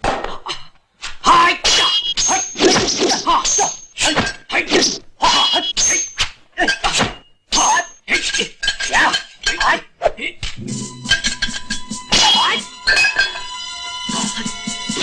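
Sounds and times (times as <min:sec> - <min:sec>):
metal weapons clanging: 0:01.8 - 0:09.8, 0:10.6 - 0:13.6.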